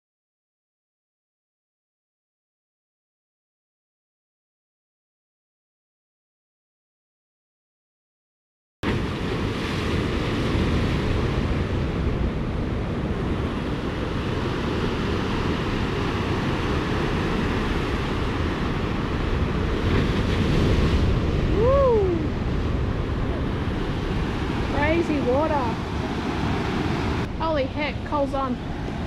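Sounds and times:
wind buffeting microphone: 8.9 - 29.0
rough running water: 14.3 - 29.0.

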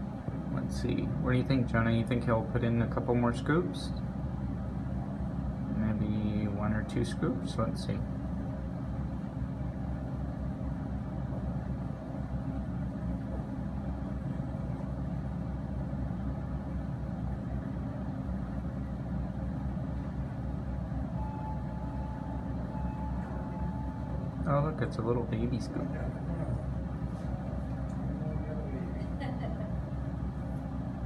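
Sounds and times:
excavator diesel engine rumble: 0.0 - 31.0
thin high whine: 19.9 - 31.0.

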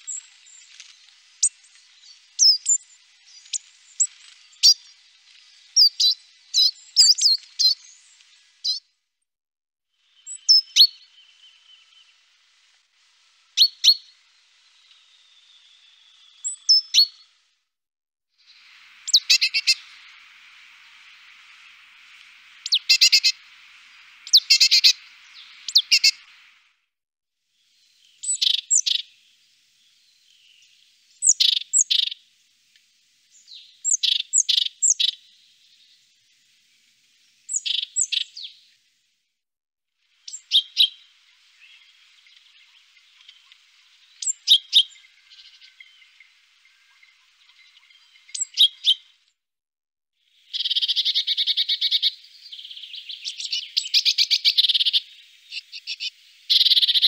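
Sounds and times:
great tit singing: 5.8 - 8.8, 13.6 - 17.3, 18.5 - 26.6, 27.7 - 32.2, 33.3 - 36.0, 37.5 - 38.6, 40.3 - 49.2, 50.4 - 57.0.

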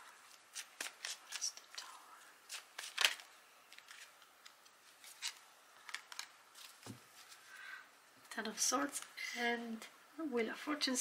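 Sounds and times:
cards clicking and flicking: 0.3 - 1.8, 2.5 - 6.9.

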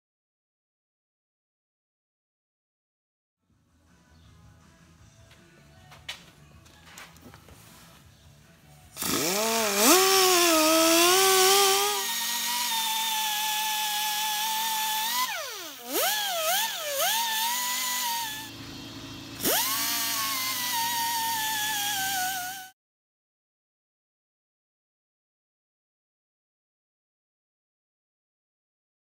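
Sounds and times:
die grinder whine: 9.0 - 22.8.

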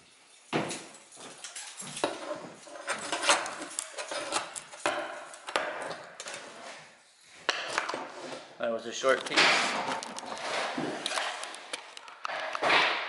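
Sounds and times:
pry bar scraping wood: 2.6 - 6.8.

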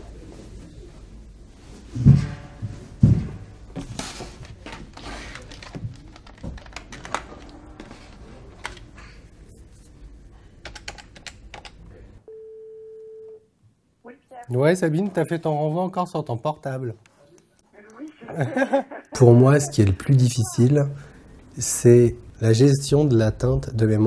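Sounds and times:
computer keyboard typing: 4.9 - 7.7, 10.6 - 11.8
steady telephone tone: 12.3 - 13.5.

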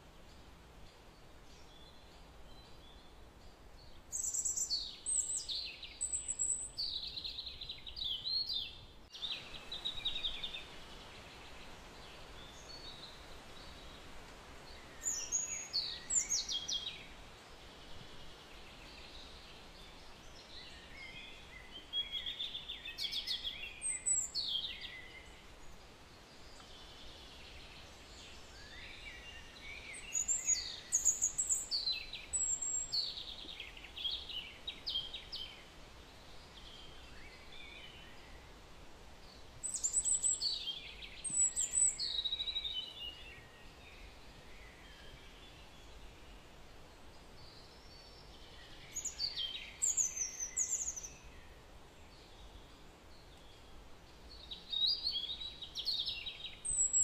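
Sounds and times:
birds singing: 0.0 - 38.6, 39.2 - 57.0
steady background hiss: 0.0 - 57.0.

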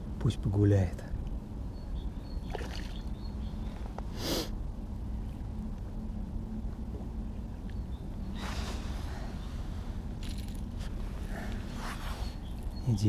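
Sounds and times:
steady low rumble: 0.0 - 13.0
fish splashing in water: 2.5 - 3.1.

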